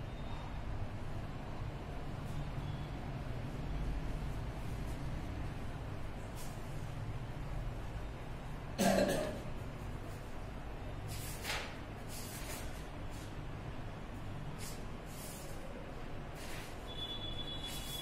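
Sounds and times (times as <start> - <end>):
short throat sound: 8.8 - 9.5.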